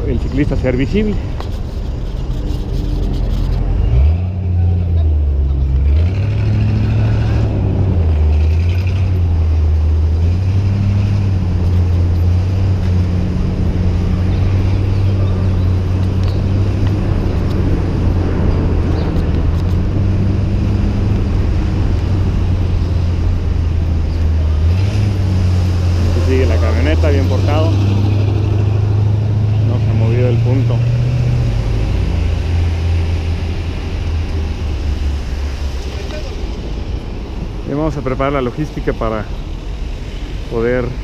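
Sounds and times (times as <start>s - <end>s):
moving air noise: 0.0s - 4.6s
city street traffic rumble: 0.0s - 41.0s.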